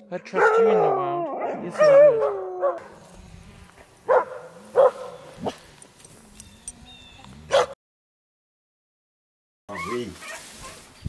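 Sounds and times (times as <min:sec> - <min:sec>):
dogs barking: 0:00.3 - 0:03.0, 0:04.0 - 0:05.7, 0:07.5 - 0:07.8.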